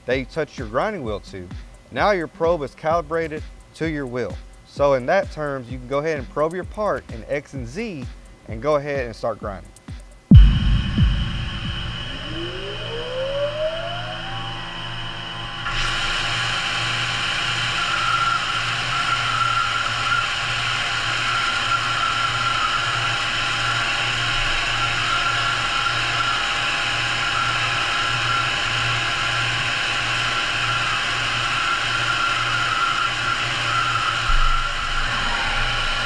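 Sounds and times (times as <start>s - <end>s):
grinding wheel whirring hiss: 9.5s - 36.0s
short low thump: 10.3s - 13.2s
pulsing low hum: 10.3s - 36.0s.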